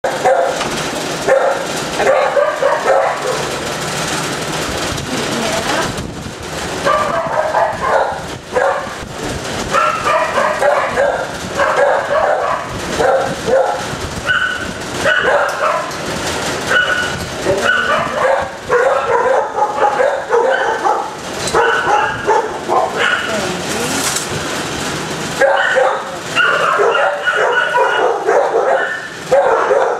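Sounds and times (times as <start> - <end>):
dogs barking: 0.0 - 4.7, 6.6 - 23.8, 24.8 - 29.9.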